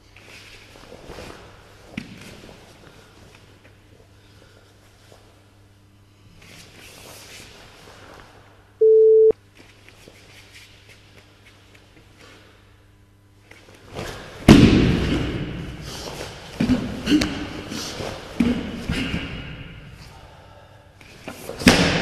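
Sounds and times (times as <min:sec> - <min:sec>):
electronic timer beep: 0:08.8 - 0:09.3.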